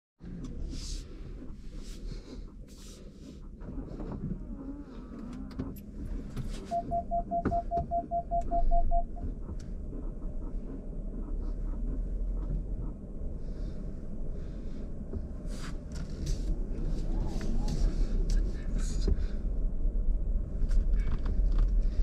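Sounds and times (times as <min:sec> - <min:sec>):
car cabin hum: 0:00.2 - 0:22.0
electronic chime beeps: 0:06.7 - 0:09.2.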